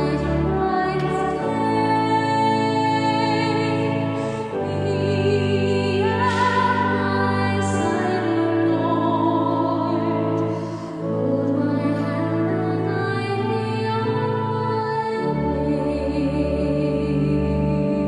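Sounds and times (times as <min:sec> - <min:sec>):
person singing with vibrato: 0:00.0 - 0:18.0.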